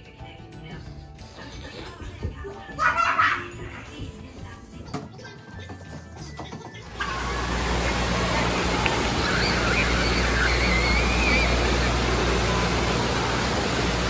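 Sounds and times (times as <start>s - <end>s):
faint high voices: 6.7s - 14.0s
fountain water splashing: 6.9s - 14.0s.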